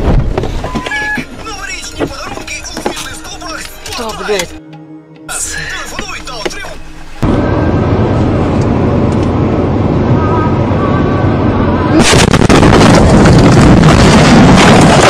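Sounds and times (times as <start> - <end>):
car road and engine noise: 5.3 - 15.0
car crash crashing and crackling: 12.0 - 15.0.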